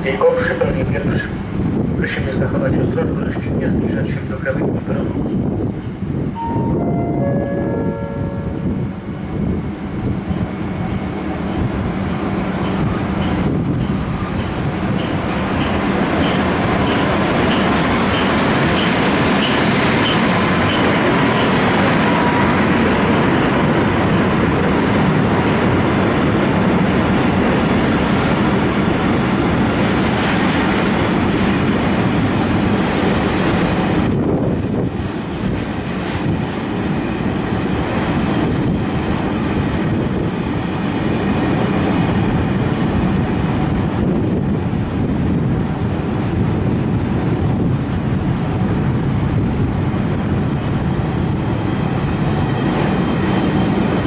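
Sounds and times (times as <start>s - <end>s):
train wheels clattering on rails: 11.4s - 45.5s, 46.2s - 54.0s.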